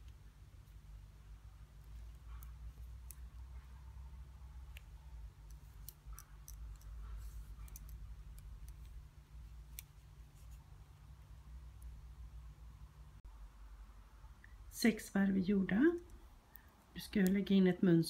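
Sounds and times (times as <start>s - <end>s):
knitting needles clicking: 0.0s - 10.6s, 15.7s - 17.6s
low steady hum: 0.0s - 18.0s.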